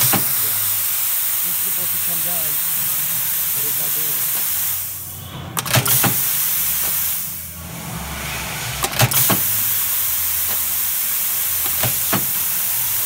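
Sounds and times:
sharp machine clacks: 0.0 - 2.7, 5.6 - 7.3, 8.8 - 13.0
compressed air hissing: 0.0 - 13.0.

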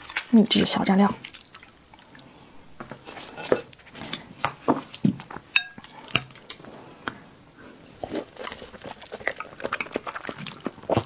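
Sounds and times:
chopsticks tapping porcelain bowl: 5.6 - 5.8
ringing clink: 5.6 - 5.8
wet bite: 8.0 - 11.0.

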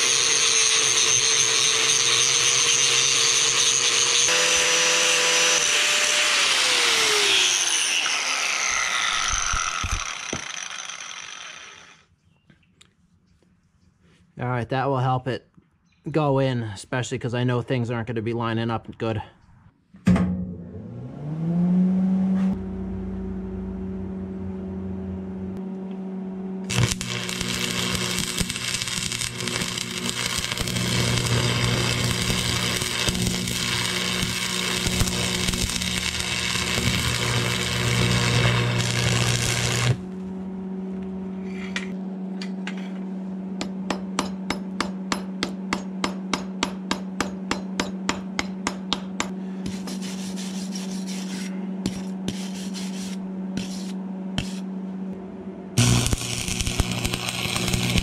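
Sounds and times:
arc welding crackle: 0.0 - 4.3, 26.7 - 40.0, 55.8 - 58.0
welder humming: 0.0 - 12.1, 20.6 - 42.5, 51.4 - 58.0.

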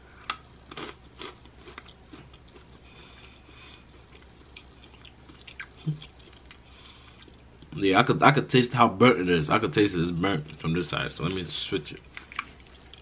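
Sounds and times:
breadstick being chewed: 0.2 - 7.7, 12.0 - 13.0.

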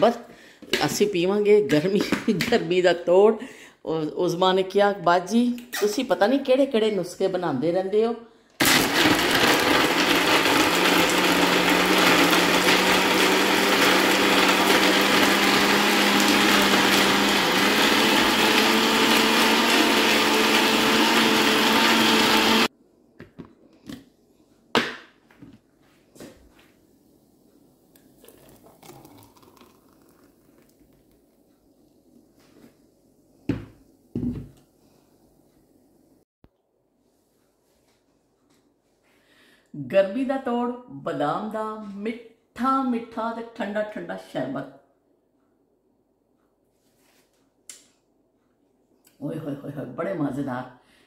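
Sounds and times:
blender motor running: 8.6 - 22.7.

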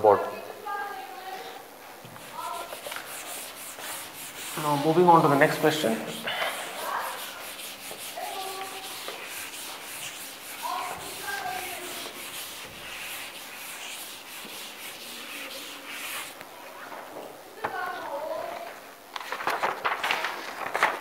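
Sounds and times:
eraser rubbing on chalkboard: 2.1 - 16.4.

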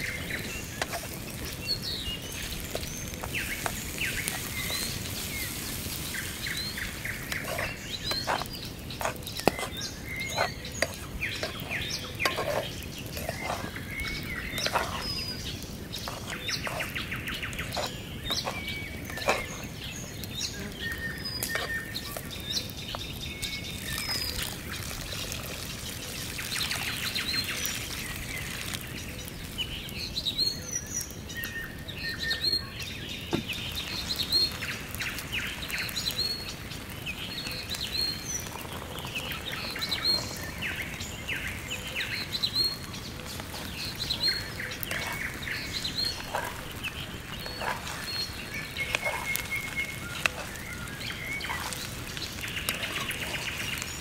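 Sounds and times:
spatula scraping frying pan: 0.0 - 22.3, 42.2 - 54.0
rice sizzling: 0.0 - 54.0
small birds chirping: 0.0 - 54.0.

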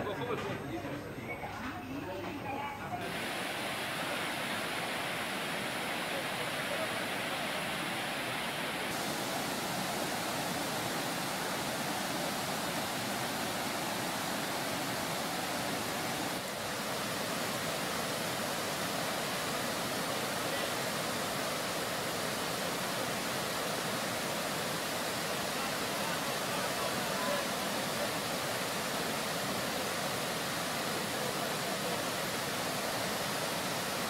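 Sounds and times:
floodwater rushing: 3.0 - 34.0.

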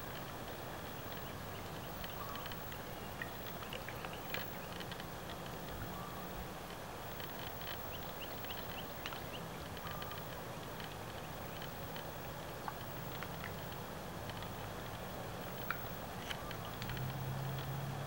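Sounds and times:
steady low hum: 0.0 - 18.0
small clicks: 0.1 - 6.0, 6.7 - 17.8
bird chirps: 0.9 - 4.8, 7.7 - 10.3.

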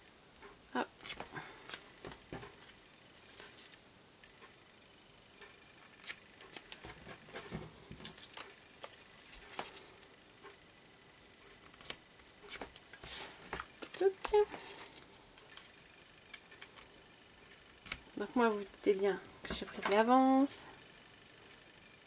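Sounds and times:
paper crinkling: 11.5 - 17.0.

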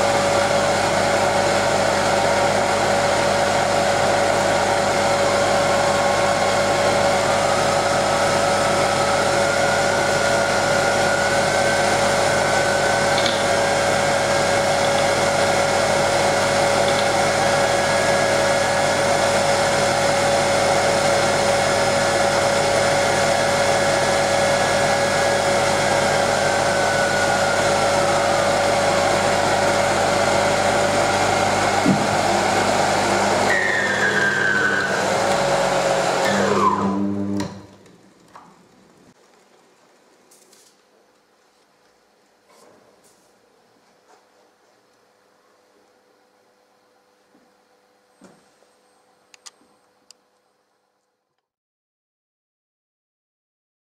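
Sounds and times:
motor whirring hum: 5.3 - 37.6.

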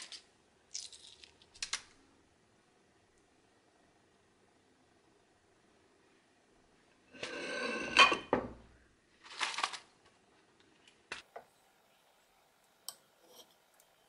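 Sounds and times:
eggshells crackling: 0.0 - 2.0.

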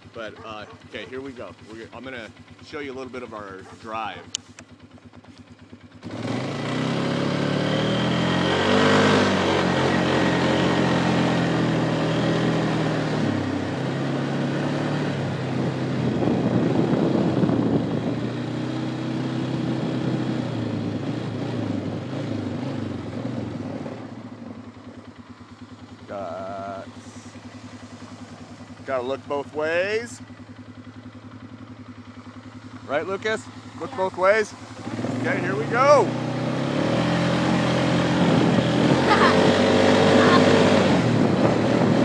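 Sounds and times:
atv engine running: 0.0 - 42.0.

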